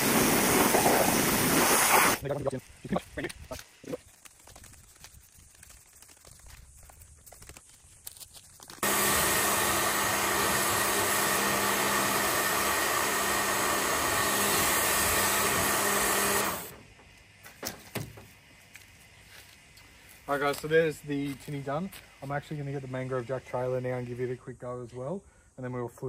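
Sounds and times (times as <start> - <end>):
pressure washer motor hum: 0.0 - 2.2, 8.8 - 16.8
water jet spraying metal hull: 0.0 - 2.5, 8.8 - 16.8.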